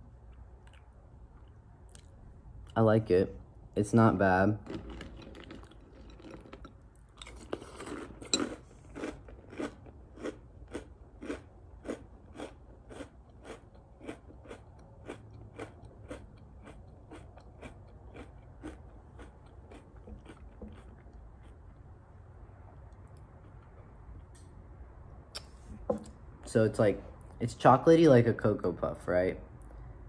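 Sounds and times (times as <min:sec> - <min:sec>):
person chewing crunchy cereal: 0:04.6 - 0:22.0.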